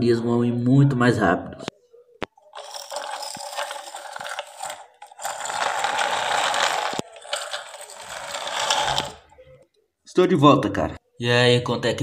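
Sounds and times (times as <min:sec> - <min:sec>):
toy truck wheels rolling on stone: 0:02.4 - 0:09.4.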